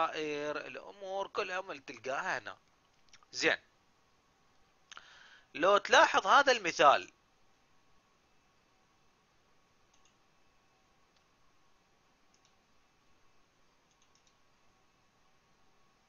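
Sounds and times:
faint electrical hum: 0.0 - 16.0
computer mouse clicks: 9.9 - 10.2, 11.1 - 11.3, 12.3 - 12.6, 13.8 - 14.5.

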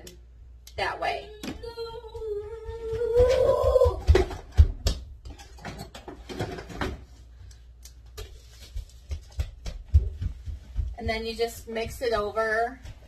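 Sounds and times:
woman humming: 1.3 - 4.0.

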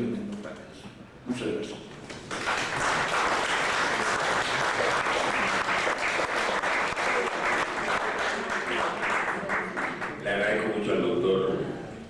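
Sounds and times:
crowd applauding: 2.1 - 10.2.

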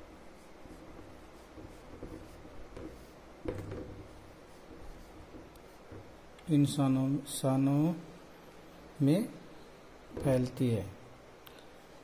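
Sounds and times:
marker scratching on whiteboard: 0.0 - 6.2.

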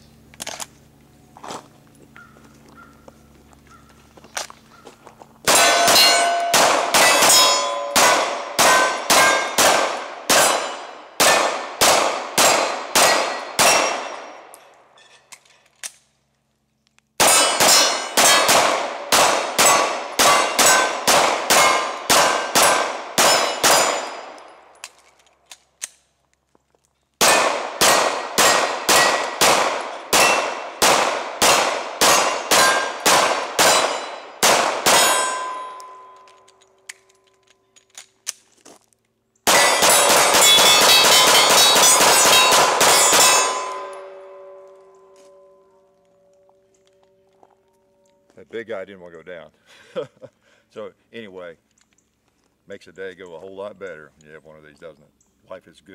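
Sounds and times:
steel targets clanging: 5.4 - 9.6, 17.2 - 18.6, 19.6 - 25.0, 32.0 - 36.8, 39.5 - 45.7
pistol shots: 5.4 - 14.5, 17.2 - 24.9, 27.2 - 36.2, 39.4 - 44.7.

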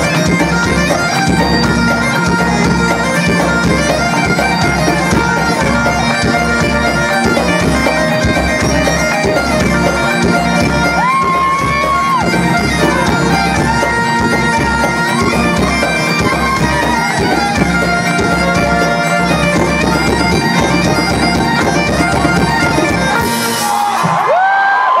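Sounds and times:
folk band playing a tune: 0.0 - 24.5.

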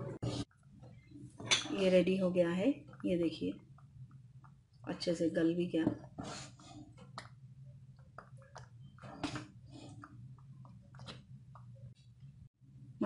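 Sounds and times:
low steady hum: 0.0 - 13.0
wooden spatula stirring: 0.2 - 5.1, 5.8 - 12.5
thick food squelching: 6.0 - 12.5.

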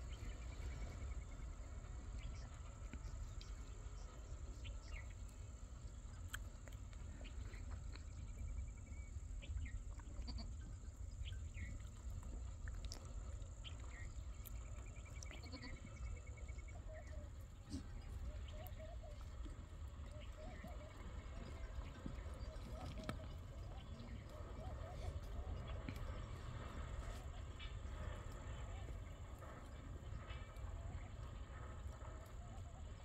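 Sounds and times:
constant low rumble: 0.0 - 33.0
wavering bleat-like calls: 15.3 - 15.9.

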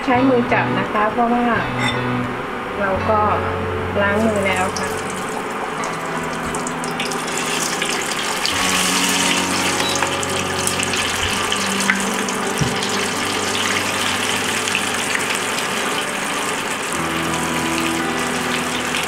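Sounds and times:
fish deep-frying in oil: 4.2 - 19.0.

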